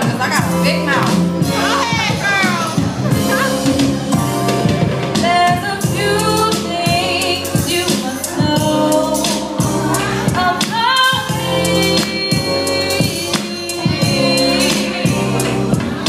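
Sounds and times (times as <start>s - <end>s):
music with a steady beat: 0.0s - 16.0s
woman singing into a microphone: 5.2s - 16.0s.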